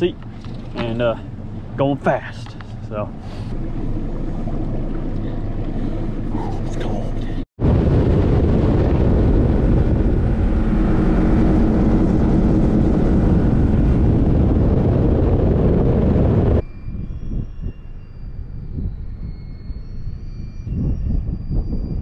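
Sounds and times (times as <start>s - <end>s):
motorboat engine droning: 0.0s - 22.0s
wind and water rushing: 7.6s - 16.6s.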